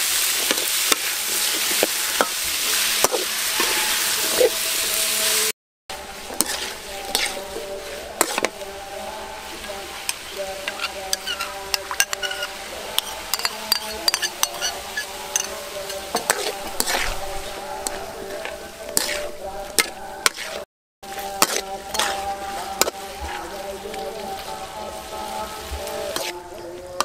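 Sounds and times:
food frying hiss: 0:00.0 - 0:27.0
metal spatula scraping a wok: 0:00.1 - 0:27.0
spatula clinking against pan: 0:10.1 - 0:17.0.

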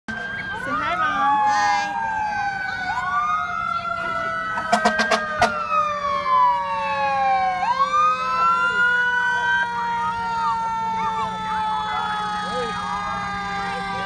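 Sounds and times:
emergency vehicle sirens wailing: 0:00.1 - 0:14.0.

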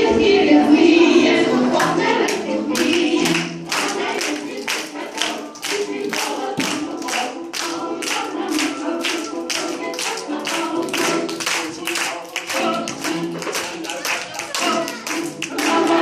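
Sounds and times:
group singing: 0:00.0 - 0:16.0
children clapping along: 0:01.8 - 0:16.0.

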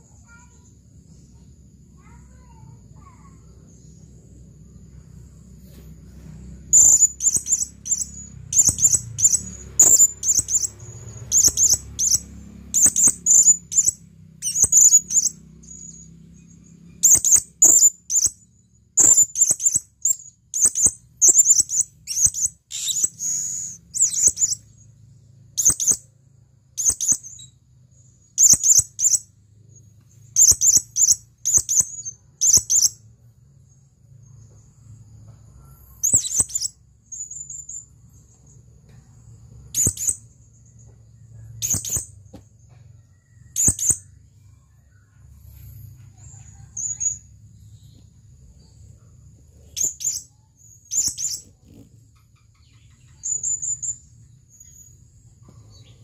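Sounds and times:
parrot shrill chirps: 0:06.7 - 0:16.1, 0:17.0 - 0:18.4, 0:19.0 - 0:24.8, 0:25.6 - 0:26.1, 0:26.8 - 0:27.5, 0:28.4 - 0:29.3, 0:30.4 - 0:33.0, 0:36.0 - 0:37.8, 0:39.7 - 0:40.3, 0:41.6 - 0:42.1, 0:43.2 - 0:44.1, 0:49.8 - 0:51.9.

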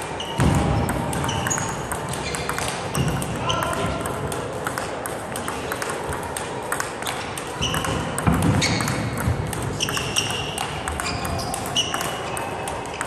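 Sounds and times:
shoe squeaks on floor: 0:00.2 - 0:00.5, 0:01.2 - 0:03.7, 0:07.6 - 0:09.2, 0:09.8 - 0:12.2
table tennis ball clicking: 0:00.3 - 0:13.0.

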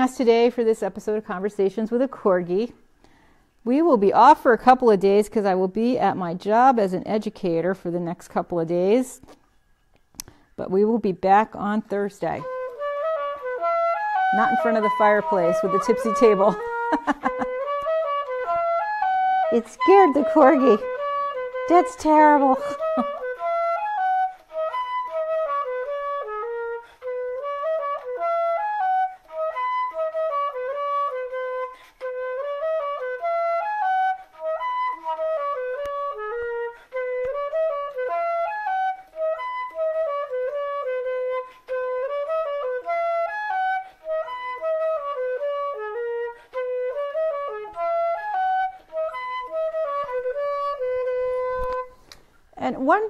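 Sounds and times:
single melody line of held notes: 0:12.3 - 0:23.6.

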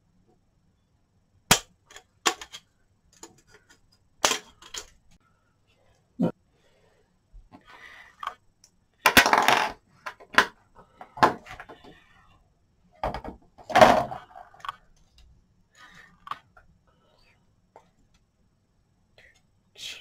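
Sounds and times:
plastic parts clattering: 0:01.5 - 0:05.2, 0:09.0 - 0:12.0, 0:13.0 - 0:15.3.

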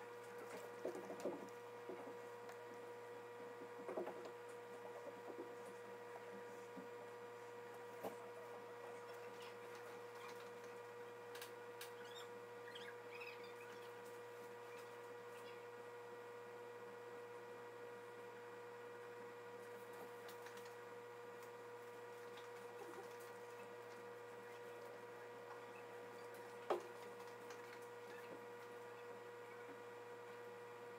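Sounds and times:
electrical hum: 0:00.0 - 0:30.9.

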